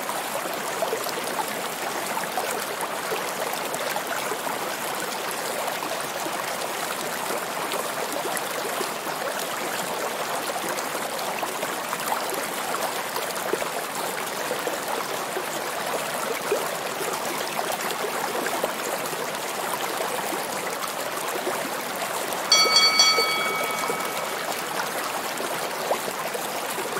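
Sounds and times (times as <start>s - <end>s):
loud steady high tone: 22.5s - 24.7s.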